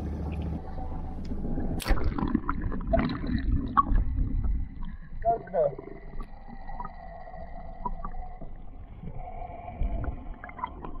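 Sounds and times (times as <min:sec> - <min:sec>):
low underwater rumble: 0:00.0 - 0:11.0
small clicks and ticks: 0:05.8 - 0:09.1.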